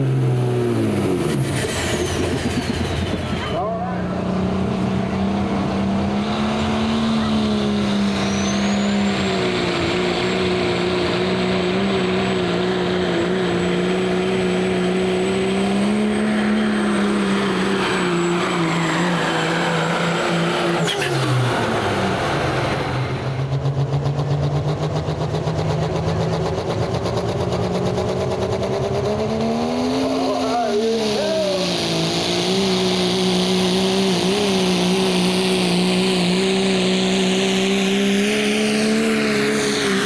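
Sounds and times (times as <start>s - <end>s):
diesel engine at full throttle: 0.0s - 40.0s
turbocharger whistle: 7.0s - 10.7s.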